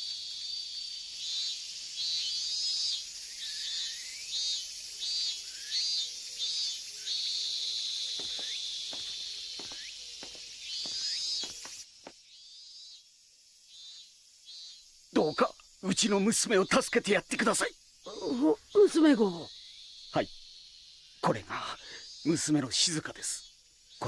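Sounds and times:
cicada singing: 0.0 - 24.0
soft footsteps: 8.1 - 12.2.

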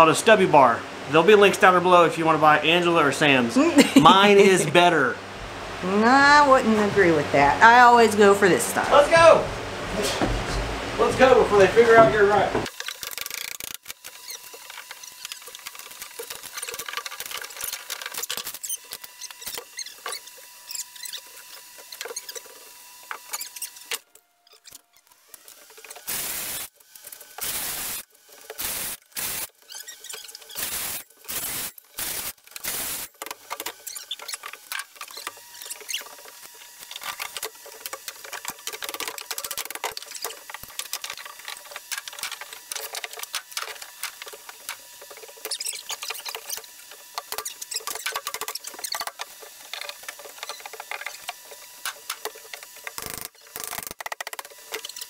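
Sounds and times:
boards creaking and squeaking: 9.2 - 55.0
wood cracking and ripping: 12.7 - 20.3, 29.1 - 55.0.

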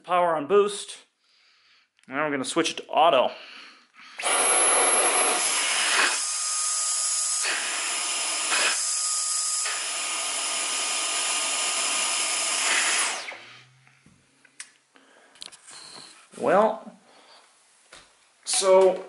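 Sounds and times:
motor spinning down: 4.2 - 13.8
vacuum motor whine: 4.2 - 13.8.

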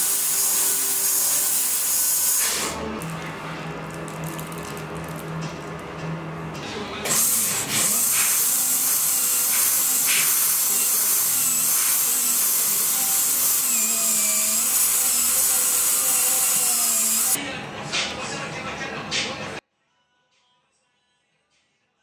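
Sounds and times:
dental drill hiss: 0.0 - 2.8, 7.1 - 17.4.

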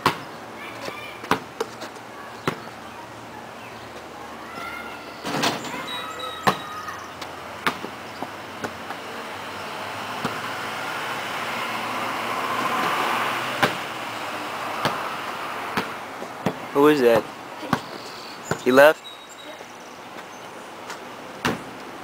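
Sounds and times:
vehicle passing: 6.9 - 17.6
basketball bouncing: 15.7 - 16.6.

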